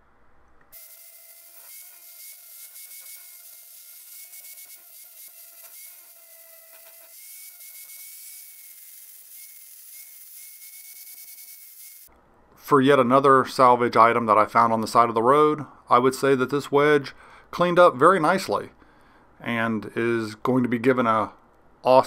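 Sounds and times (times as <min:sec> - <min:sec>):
angle grinder grinding steel: 0:00.7 - 0:12.1.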